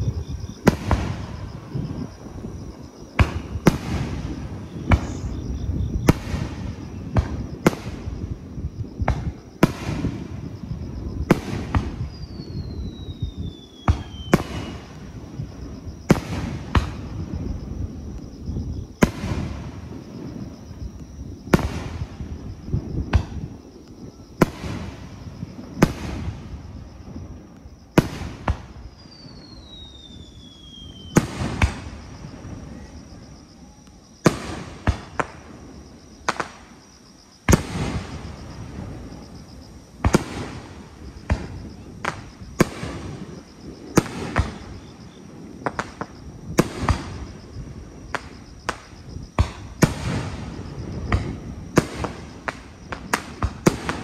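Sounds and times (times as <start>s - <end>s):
falling firework whistle: 3.1s - 8.3s, 9.0s - 15.1s, 28.0s - 35.4s.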